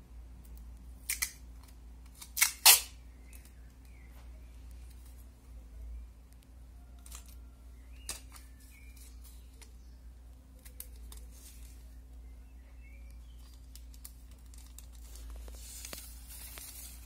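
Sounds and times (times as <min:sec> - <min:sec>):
steady low hum: 0:00.0 - 0:17.0
scissors snipping tape: 0:01.0 - 0:03.5
tape pressed onto newspaper: 0:13.3 - 0:17.0.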